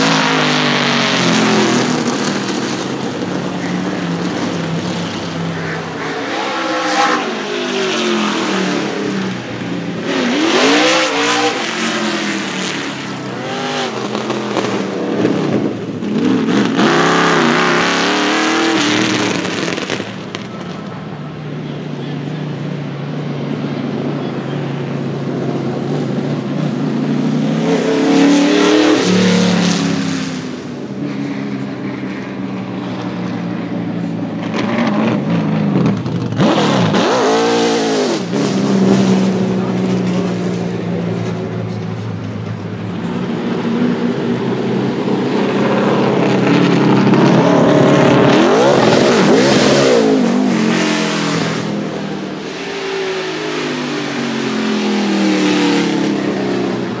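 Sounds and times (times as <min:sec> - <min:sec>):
race car engines idling: 0:00.0 - 0:07.4, 0:18.8 - 0:28.1, 0:29.0 - 0:37.0, 0:38.1 - 0:57.0
engine revving: 0:00.0 - 0:20.5, 0:34.3 - 0:41.5, 0:43.0 - 0:57.0.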